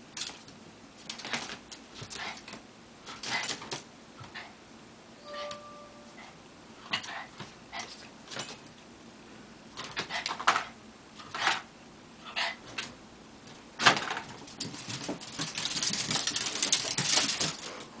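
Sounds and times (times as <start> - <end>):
dogs scuffling and huffing: 13.5 - 17.9
claws scrabbling on wood floor: 14.0 - 17.8.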